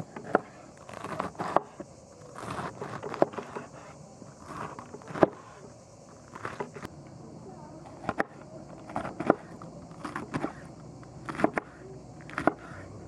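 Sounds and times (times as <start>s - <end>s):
knife crunching through cabbage: 0.8s - 1.6s, 2.3s - 3.8s.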